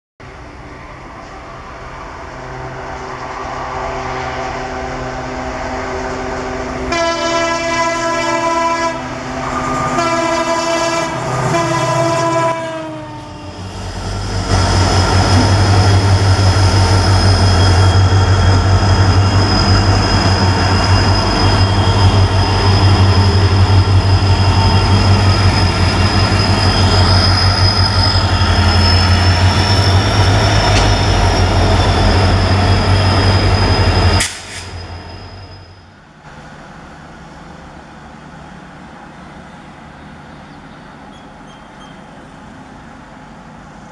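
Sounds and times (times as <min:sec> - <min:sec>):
train rumbling past: 0:00.2 - 0:43.9
locomotive air horn blasts: 0:06.9 - 0:13.7.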